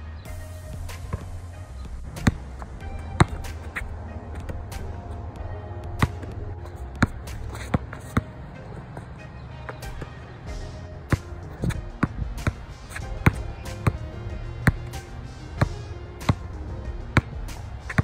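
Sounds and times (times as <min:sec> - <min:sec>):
background music with bass: 0:00.0 - 0:18.0
basketball bouncing on hard court: 0:01.0 - 0:08.3, 0:09.7 - 0:18.0.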